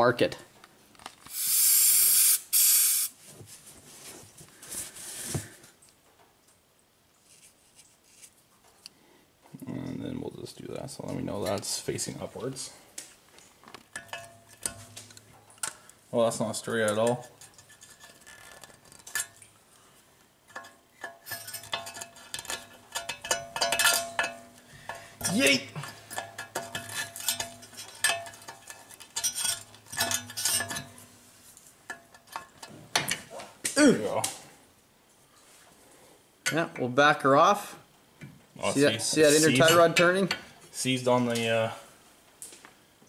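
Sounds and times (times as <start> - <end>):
aerosol spray can hissing: 1.3 - 3.1
rubbing and scraping on metal: 16.7 - 19.4, 20.5 - 33.4.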